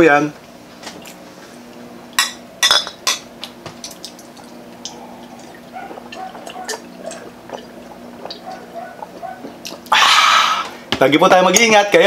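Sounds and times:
gulping: 0:04.3 - 0:10.8.

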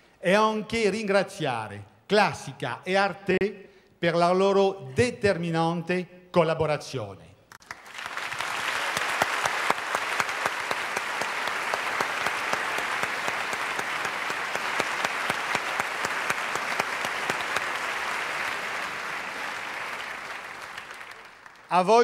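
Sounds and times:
audience applauding: 0:07.5 - 0:22.0.

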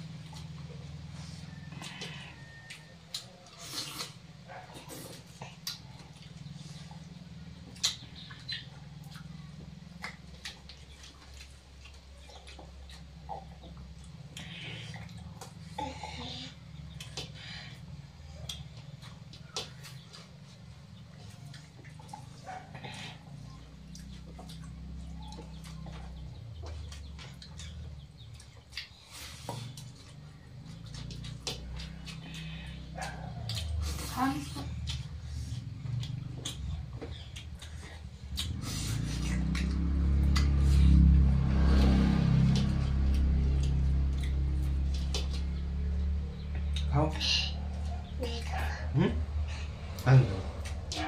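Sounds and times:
eating clicks and wet smacks: 0:00.0 - 0:15.8, 0:16.5 - 0:51.0
chewing: 0:00.0 - 0:51.0
low hum: 0:29.2 - 0:51.0.

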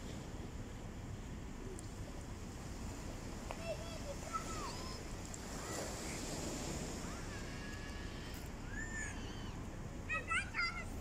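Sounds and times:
small waves washing on shore: 0:00.0 - 0:11.0
children calling and shouting: 0:03.5 - 0:06.3, 0:06.9 - 0:11.0.

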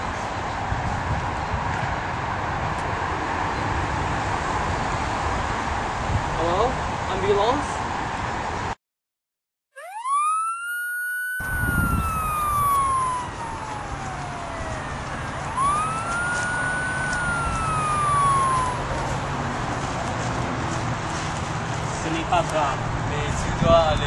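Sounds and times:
outdoor background noise: 0:00.0 - 0:08.8, 0:09.8 - 0:24.0
ambulance siren wailing: 0:09.8 - 0:19.8.

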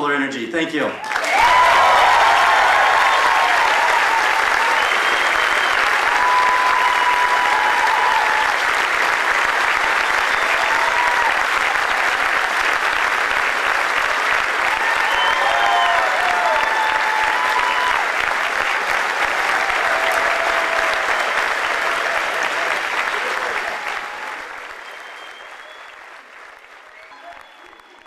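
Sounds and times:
crowd applauding: 0:01.0 - 0:28.0.

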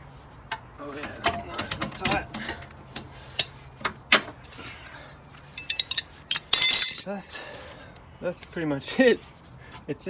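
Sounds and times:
metal tools clinking: 0:05.6 - 0:07.1.

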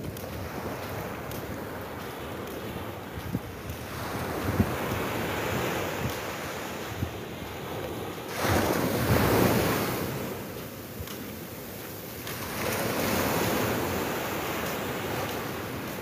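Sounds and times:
waves washing up a beach: 0:00.0 - 0:16.0
wind buffeting microphone: 0:00.0 - 0:16.0.

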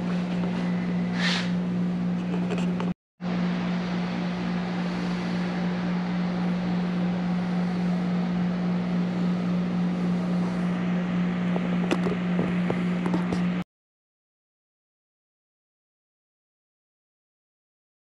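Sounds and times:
machinery hum: 0:00.0 - 0:13.6.

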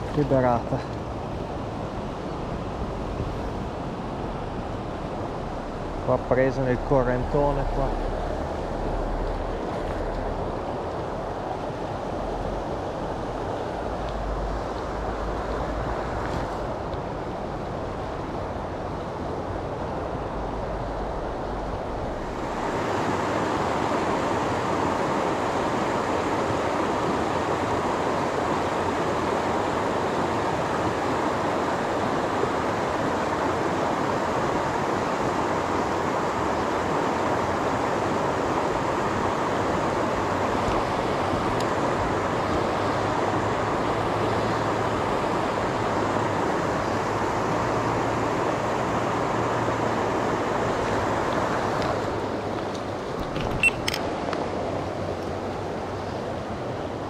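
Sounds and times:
fast river rushing: 0:00.0 - 0:57.0.

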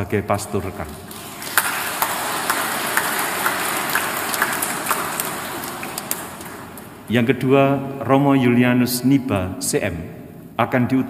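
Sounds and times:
crowd applauding: 0:00.8 - 0:07.1.

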